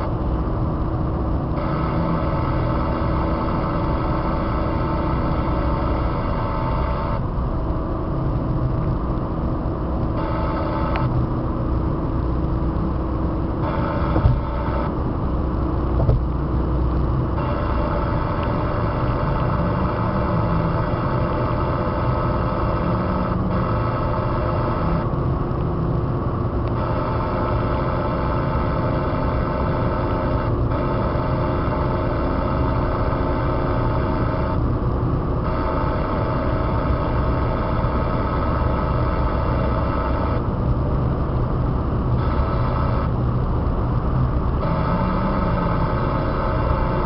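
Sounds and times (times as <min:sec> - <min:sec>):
car cruising on highway: 0:00.0 - 0:47.0.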